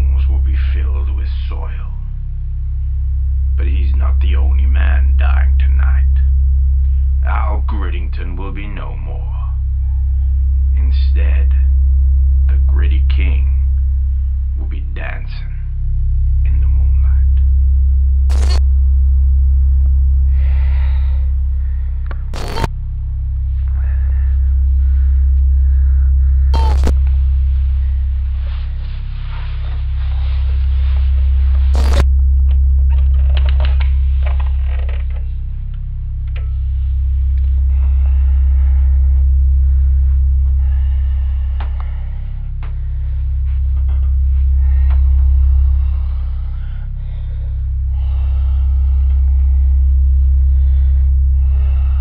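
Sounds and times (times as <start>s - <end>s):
low electrical hum: 0.0s - 52.0s
short crackling bursts: 21.6s - 22.7s, 31.7s - 32.1s.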